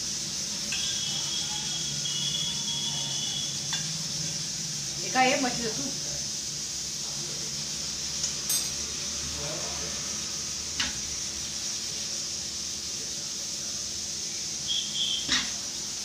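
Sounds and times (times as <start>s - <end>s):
pot hissing on gas burner: 0.0s - 16.0s
steel utensils clinking: 8.2s - 8.8s.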